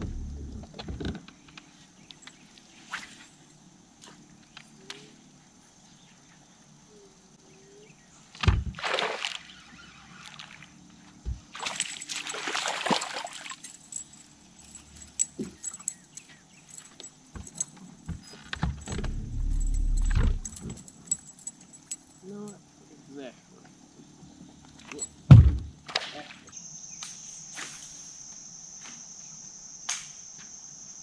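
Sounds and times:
low rumble: 0.0s - 0.8s, 18.7s - 20.9s
thump: 8.4s - 8.8s, 17.4s - 20.8s, 25.3s - 25.7s
fish thrashing in water: 11.6s - 13.8s.

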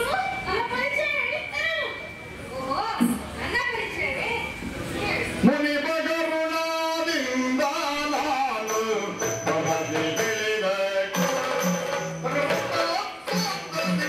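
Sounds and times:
drum strokes: 7.5s - 14.0s.

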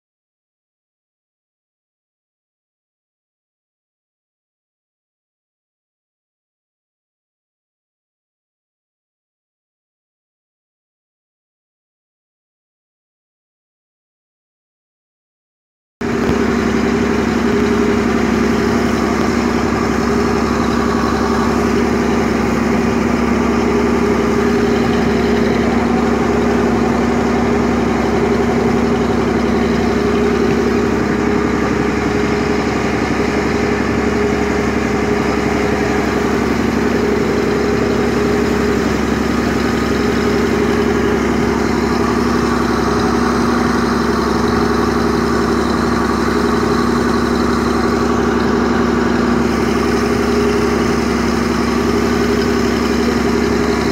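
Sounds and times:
ferry engine hum: 16.0s - 53.9s.

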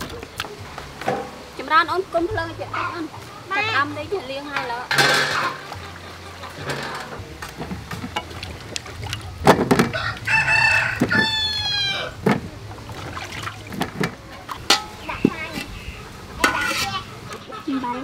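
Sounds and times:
rooster crowing: 9.9s - 12.2s.

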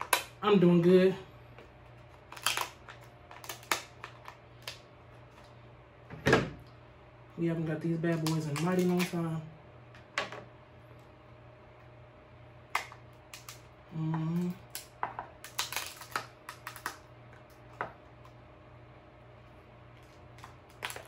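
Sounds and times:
crab shell cracking: 2.0s - 4.8s, 12.7s - 13.7s, 14.4s - 17.8s, 20.2s - 21.0s
person humming: 13.9s - 14.7s.

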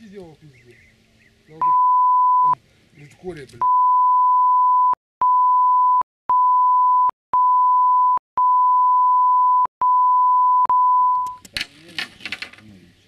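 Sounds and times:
censor beep tone: 1.6s - 2.6s, 3.6s - 11.4s
clicks: 11.1s - 11.7s.

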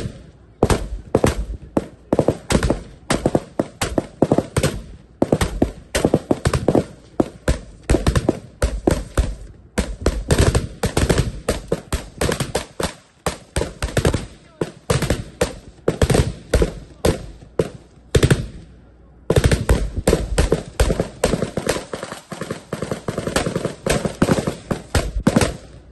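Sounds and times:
rifles firing: 0.0s - 18.7s, 19.3s - 25.9s.

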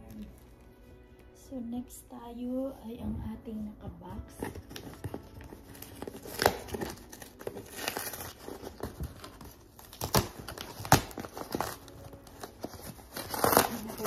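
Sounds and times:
packing tape scratching and ripping: 4.3s - 14.0s.

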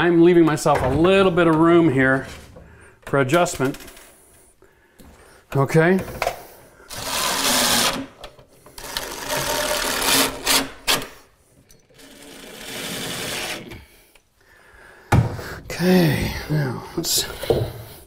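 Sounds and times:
cordless drill motor whirring: 6.9s - 8.0s.

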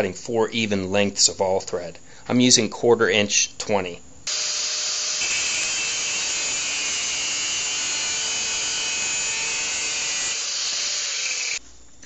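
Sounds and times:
angle grinder cutting steel rod: 4.3s - 11.6s.

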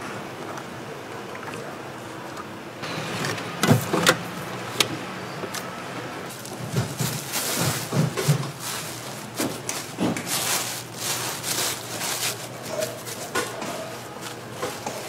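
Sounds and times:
plastic film crinkling: 6.3s - 15.0s.

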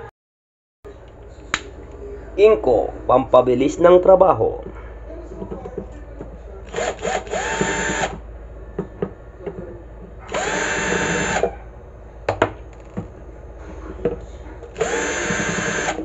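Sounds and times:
cordless drill motor whine: 6.7s - 8.2s, 10.3s - 11.5s, 14.7s - 16.0s.

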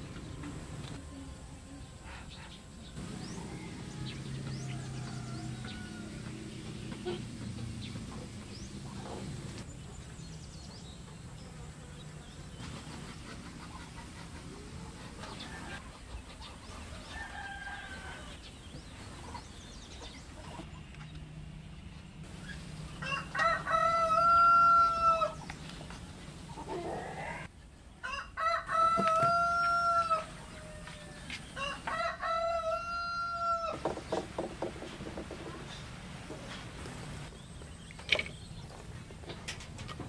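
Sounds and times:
rooster crowing: 3.1s - 6.4s, 17.0s - 18.5s, 23.0s - 25.4s, 26.9s - 33.8s.

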